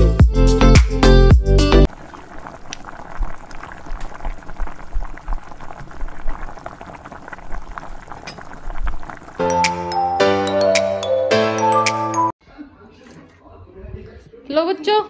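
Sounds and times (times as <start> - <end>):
music: 0.0 - 1.9, 9.4 - 12.3
water boiling with bubbling pops: 1.9 - 10.1.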